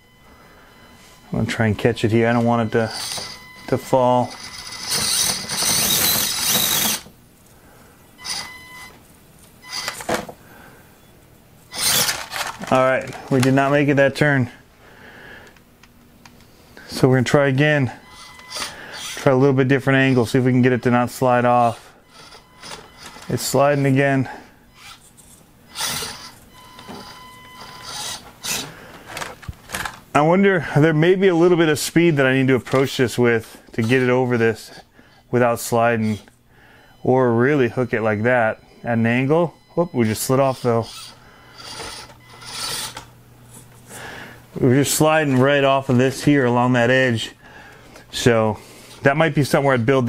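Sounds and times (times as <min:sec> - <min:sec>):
small electric motor whirring: 0:02.9 - 0:03.4, 0:04.3 - 0:07.1, 0:08.2 - 0:08.6, 0:09.6 - 0:10.1, 0:11.7 - 0:12.6, 0:18.1 - 0:19.2, 0:22.1 - 0:23.3, 0:24.7 - 0:28.7, 0:40.5 - 0:43.1.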